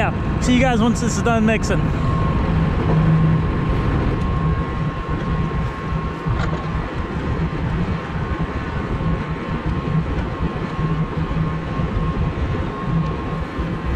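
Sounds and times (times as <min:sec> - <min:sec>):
feed mixer wagon drone: 0:00.0 - 0:13.9
thin constant whine: 0:00.0 - 0:13.9.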